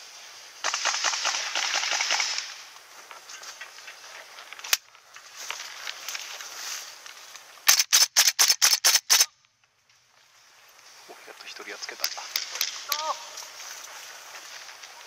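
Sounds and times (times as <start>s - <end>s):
airsoft rifle shots: 0.6s - 2.6s, 7.7s - 9.4s.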